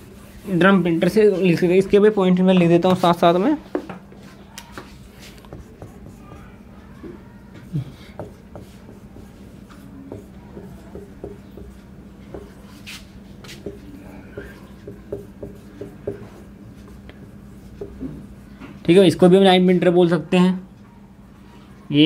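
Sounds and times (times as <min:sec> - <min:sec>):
marker squeaking on whiteboard: 0:04.4 - 0:18.4.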